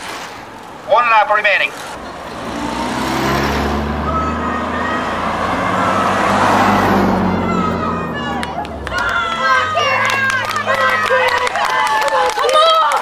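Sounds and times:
car driving past: 1.7s - 11.7s.

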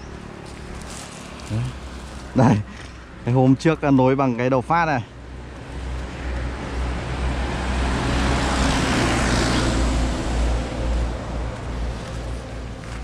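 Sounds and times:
vehicle passing by: 5.2s - 13.0s.

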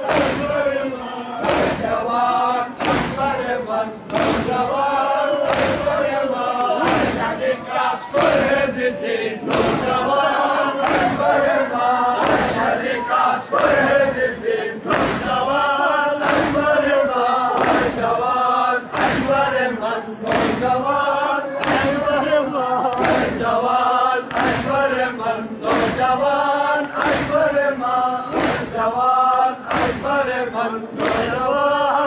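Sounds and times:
hands slapping chests: 0.0s - 0.5s, 1.4s - 1.9s, 2.8s - 3.3s, 4.1s - 4.6s, 5.4s - 6.0s, 6.6s - 7.3s, 9.4s - 10.0s, 10.8s - 11.3s, 12.2s - 12.7s, 13.5s - 13.9s, 14.9s - 15.4s, 16.2s - 16.7s, 17.5s - 18.1s, 18.9s - 19.5s, 20.2s - 20.7s, 21.6s - 22.0s, 22.8s - 23.4s, 24.2s - 24.8s, 25.6s - 26.1s, 26.8s - 27.5s, 28.2s - 30.2s, 30.9s - 31.4s
men chanting: 0.0s - 32.0s.

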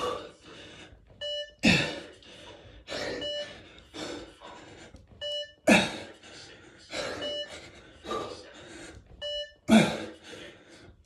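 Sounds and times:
heavy gasping breaths: 0.0s - 11.0s
electronic beeps: 1.2s - 1.6s, 3.2s - 3.5s, 5.2s - 5.6s, 7.2s - 7.5s, 9.2s - 9.6s.

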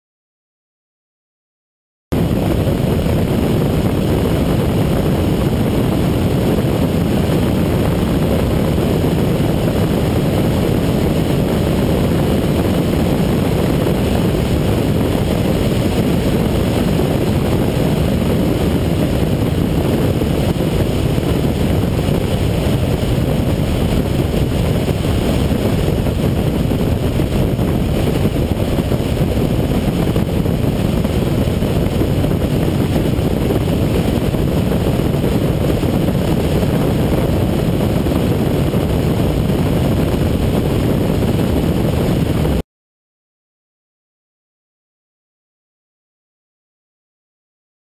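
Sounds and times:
wind and road noise rumble: 2.1s - 42.6s.

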